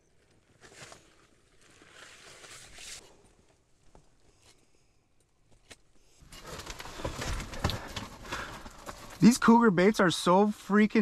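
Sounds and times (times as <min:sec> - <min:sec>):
rustling of gear: 0:05.5 - 0:09.4.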